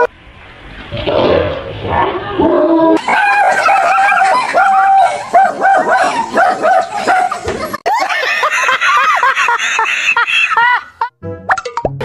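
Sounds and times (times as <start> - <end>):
dog yapping: 3.0 - 7.5
man and woman laughing: 3.0 - 11.1.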